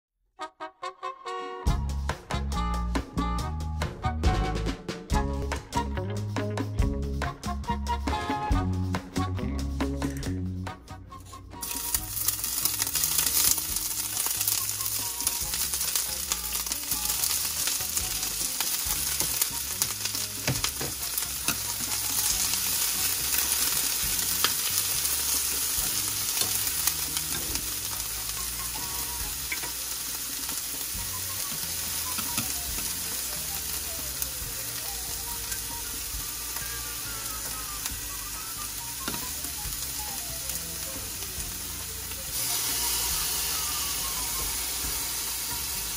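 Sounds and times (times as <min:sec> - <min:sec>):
onion sizzling in skillet: 0:11.6 - 0:45.9
chopsticks clicking and scraping pan: 0:15.5 - 0:25.5, 0:26.1 - 0:28.0, 0:29.5 - 0:30.7.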